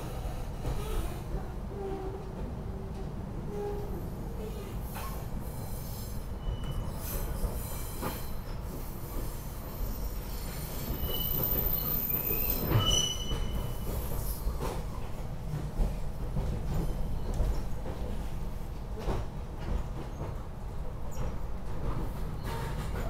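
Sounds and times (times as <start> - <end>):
train wheels rumbling on track: 0.0 - 23.0
high wheel squeals: 10.0 - 14.4.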